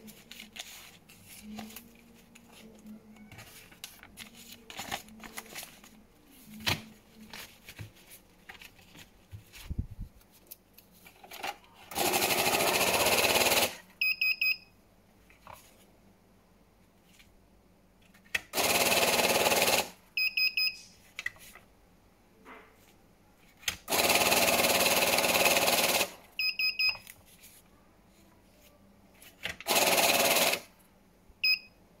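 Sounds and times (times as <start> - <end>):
banknote counter whirring: 11.9 - 13.8, 18.6 - 19.9, 23.9 - 26.2, 29.6 - 30.6.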